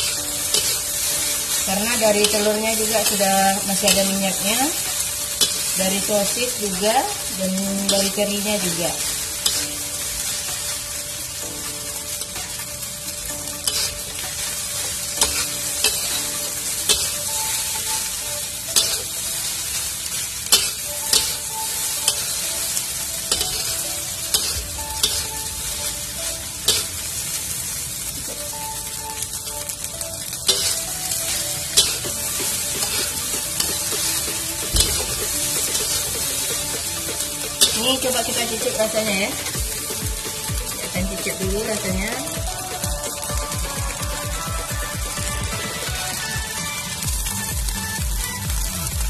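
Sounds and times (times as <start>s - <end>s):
metal spatula scraping a pan: 0.0s - 10.6s, 13.5s - 18.2s, 18.8s - 22.4s, 23.3s - 25.3s, 26.7s - 26.9s, 30.5s - 39.6s
rice sizzling in a wok: 0.0s - 49.0s.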